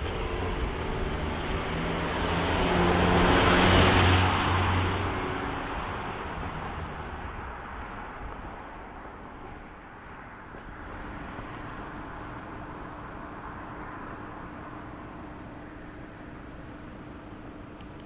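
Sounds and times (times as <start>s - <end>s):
car passing by: 0.0s - 16.2s.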